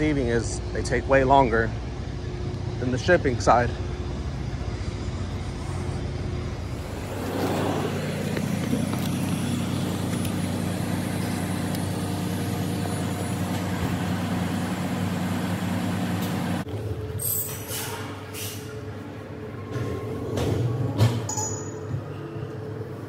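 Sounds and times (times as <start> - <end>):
engine running: 0.0 - 17.2.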